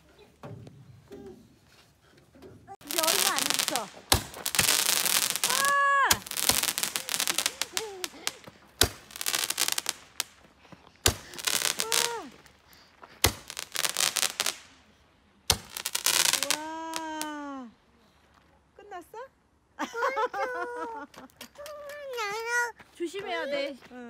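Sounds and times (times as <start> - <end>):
firework bangs: 2.8 - 10.4, 11.0 - 12.6, 13.2 - 14.8, 15.5 - 17.2
firework crackling: 2.8 - 17.5
voice exclamations: 5.4 - 6.3, 11.4 - 12.5.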